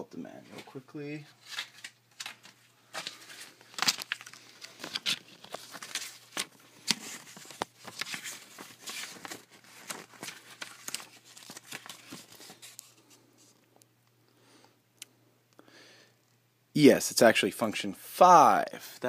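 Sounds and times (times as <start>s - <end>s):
paper rustling and crinkling: 0.5s - 13.6s.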